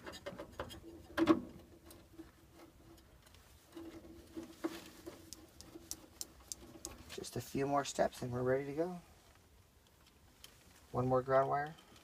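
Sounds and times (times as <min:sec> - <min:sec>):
clicks and taps of connectors: 0:05.2 - 0:07.1
sharp ticks: 0:05.3 - 0:07.0.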